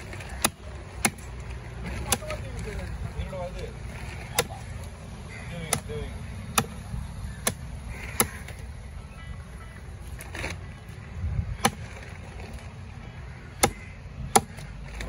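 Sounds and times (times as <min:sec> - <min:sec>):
cleaver chopping fish on block: 0:04.2 - 0:04.7, 0:05.7 - 0:05.9, 0:07.4 - 0:08.6, 0:13.6 - 0:14.7.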